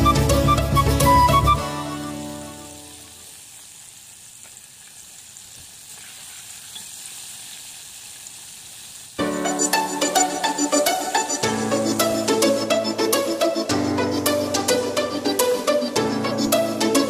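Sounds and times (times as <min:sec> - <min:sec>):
music: 0:00.0 - 0:03.2, 0:09.2 - 0:17.0
oil sizzling and bubbling: 0:00.5 - 0:15.8.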